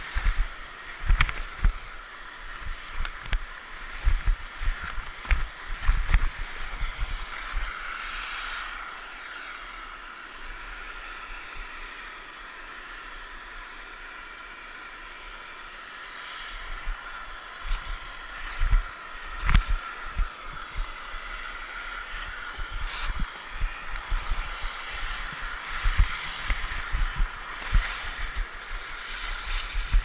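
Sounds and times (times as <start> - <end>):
skis scraping over snow: 0.0 - 12.4, 16.0 - 30.0
wind buffeting microphone: 22.1 - 30.0.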